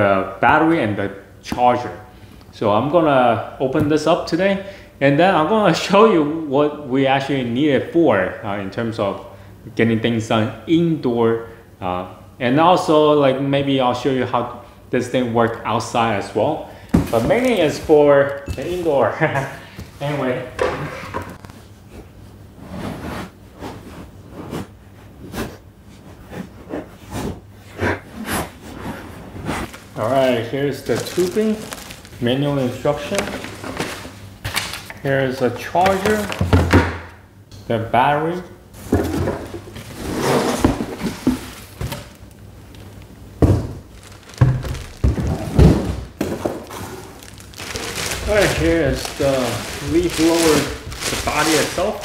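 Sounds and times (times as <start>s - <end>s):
cardboard flaps scraping and rustling: 16.9s - 19.3s, 28.2s - 34.9s, 38.8s - 42.9s, 43.5s - 52.0s
cardboard box handled: 30.8s - 32.2s, 44.0s - 52.0s.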